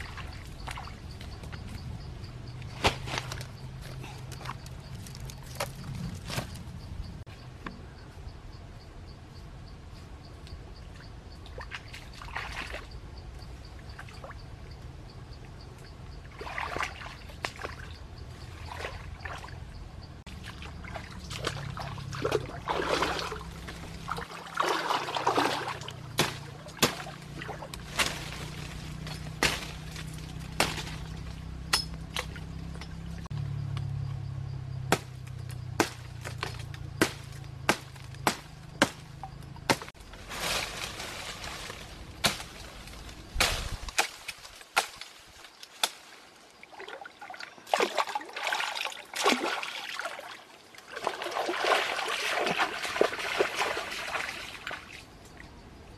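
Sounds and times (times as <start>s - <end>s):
feet wading through water: 11.6s - 12.9s, 16.3s - 17.9s, 20.3s - 28.8s, 46.6s - 55.0s
knife chopping branch: 26.1s - 31.1s, 34.9s - 40.0s, 42.2s - 42.6s.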